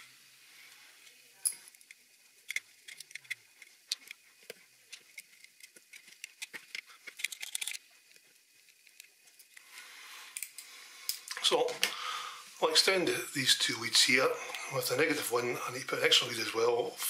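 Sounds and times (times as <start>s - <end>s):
small clicks and scrapes on metal mesh: 0.7s - 11.2s.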